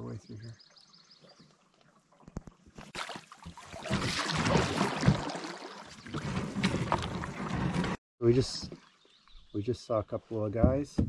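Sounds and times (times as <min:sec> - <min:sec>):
paddle splashing water: 0:01.2 - 0:08.0.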